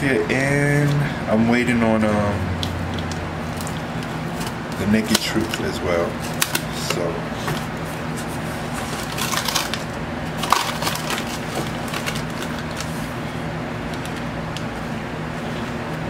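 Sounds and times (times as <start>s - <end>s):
low steady hum: 0.0s - 16.0s
cardboard crackling and scraping: 7.4s - 13.1s.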